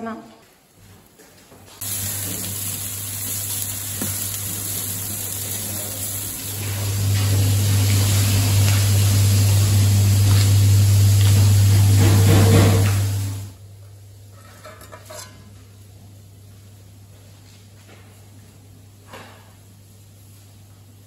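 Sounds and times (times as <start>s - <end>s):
steady hissing noise: 1.8s - 13.6s
low hum: 6.4s - 13.6s.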